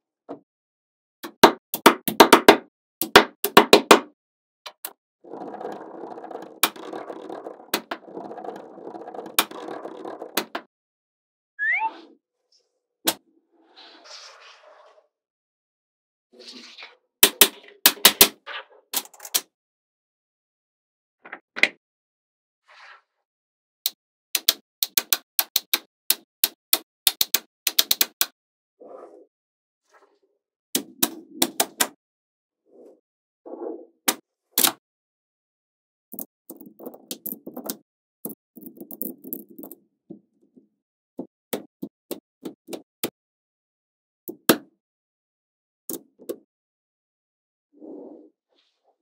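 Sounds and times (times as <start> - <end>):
magnetic balls clicking together: 24.4 - 28.3, 36.1 - 39.8.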